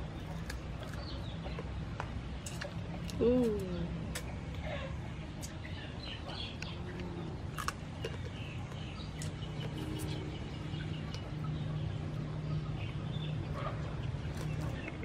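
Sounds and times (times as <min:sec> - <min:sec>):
birds chirping: 0:00.0 - 0:15.0
steady low hum: 0:00.0 - 0:15.0
chickens clucking: 0:04.1 - 0:15.0.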